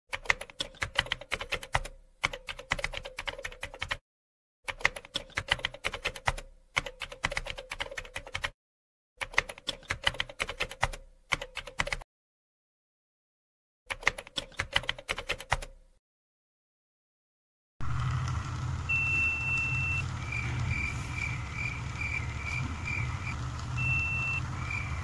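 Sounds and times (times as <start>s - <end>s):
rapid keyboard key clicks: 0.1s - 4.0s, 4.7s - 8.6s, 9.2s - 12.0s, 13.9s - 15.8s.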